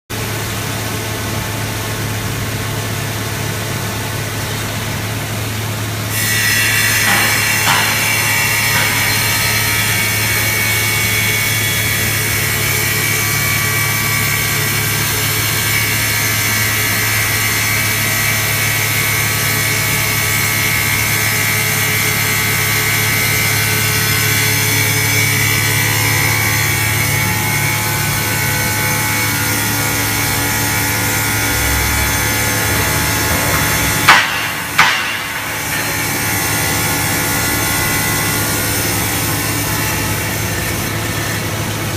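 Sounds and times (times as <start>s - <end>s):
sharp loud knocks: 6.9s - 9.6s, 32.2s - 36.5s
cutting machine motor whine: 19.3s - 34.1s.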